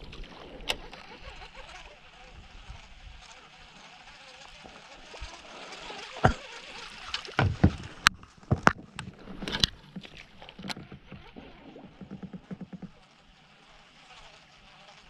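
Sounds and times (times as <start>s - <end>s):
water sloshing: 0.0s - 13.5s
knocks on boat hull: 7.4s - 8.9s.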